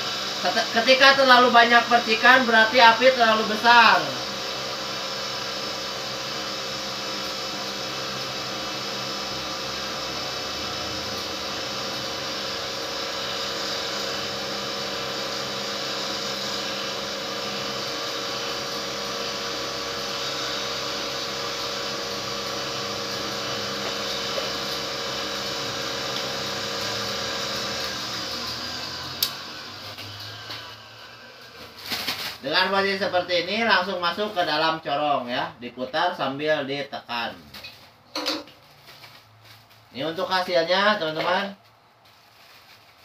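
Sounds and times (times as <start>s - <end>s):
cotton candy machine motor hum: 0.0s - 35.2s.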